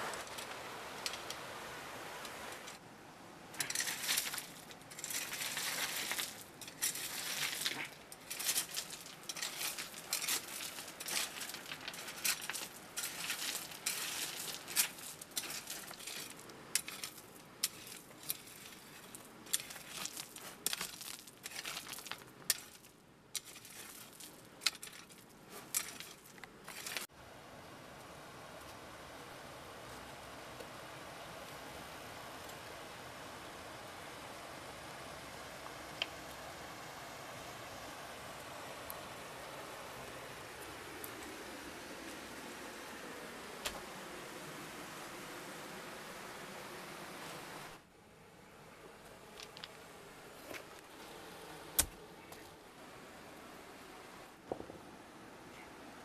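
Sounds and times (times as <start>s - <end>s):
hand tool scraping gravel: 3.6s - 27.1s
pebbles clinking together: 3.6s - 27.1s.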